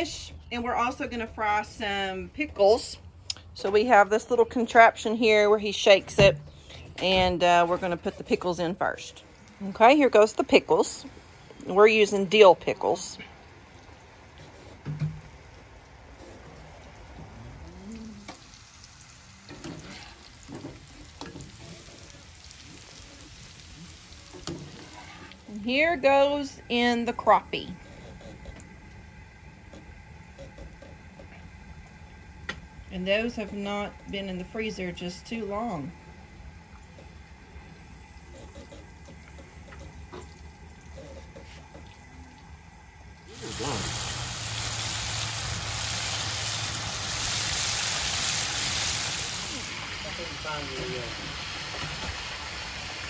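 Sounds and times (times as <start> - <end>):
cooking oil sizzling: 17.9 - 27.7, 28.6 - 53.0.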